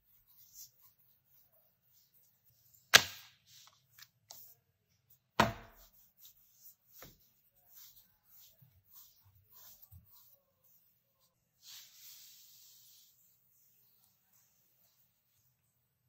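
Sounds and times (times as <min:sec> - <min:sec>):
dough rubbing and clicks: 0:00.0 - 0:15.6
rolling pin knocking on board: 0:05.4 - 0:05.9.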